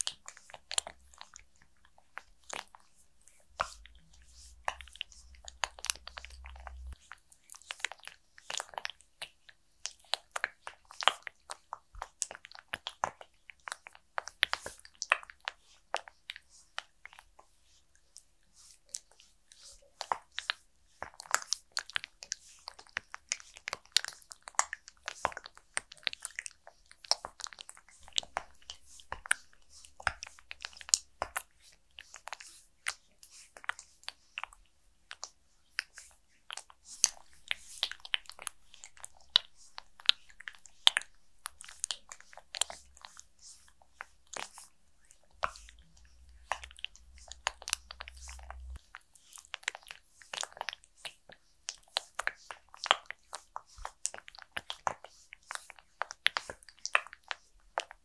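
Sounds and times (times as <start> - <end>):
wet hands massaging squelches: 0.0 - 58.0.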